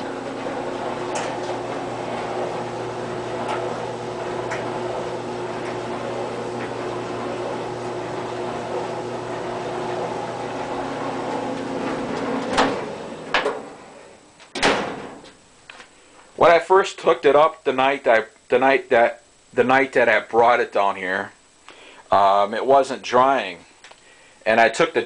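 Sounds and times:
dryer clunk: 0.0s - 13.8s, 14.4s - 15.4s
clothes dryer running: 0.0s - 16.6s.

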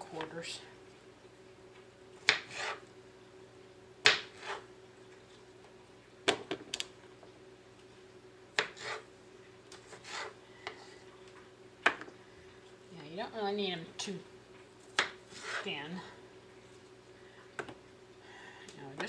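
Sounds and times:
knife scraping board: 2.3s - 2.9s, 4.2s - 4.7s, 8.6s - 9.1s, 9.8s - 10.4s, 15.3s - 15.8s.

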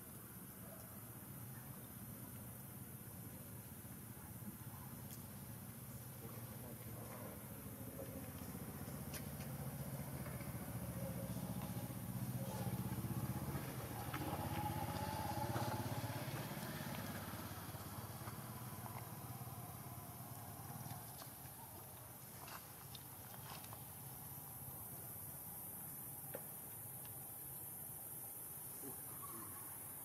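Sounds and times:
vehicle engine passing: 8.5s - 20.9s.

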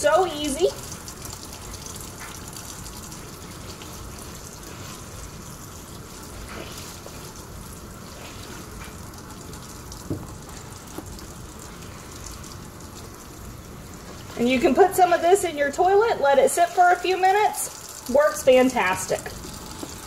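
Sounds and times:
faucet running into steel sink: 0.0s - 20.0s
sponge wiping sink: 3.2s - 12.2s, 14.0s - 17.6s.

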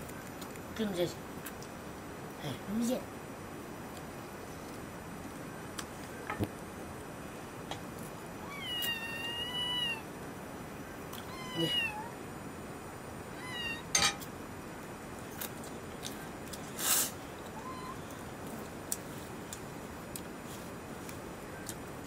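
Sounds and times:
kitten meowing: 8.4s - 10.1s, 11.2s - 12.2s, 13.3s - 14.0s, 17.6s - 18.0s.

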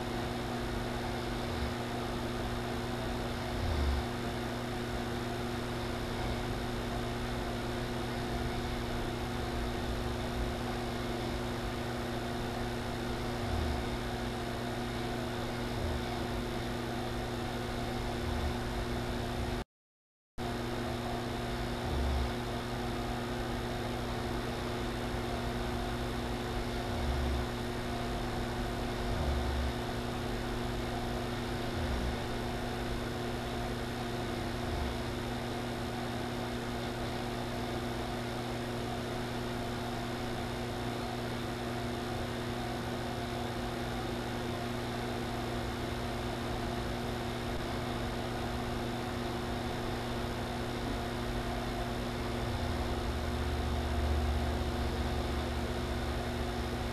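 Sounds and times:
electrical mains hum: 0.0s - 19.6s, 20.4s - 56.9s.

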